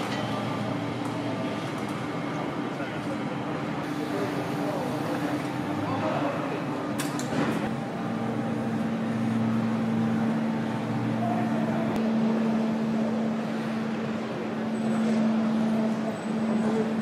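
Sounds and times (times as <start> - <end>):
factory machinery drone: 0.0 - 17.0.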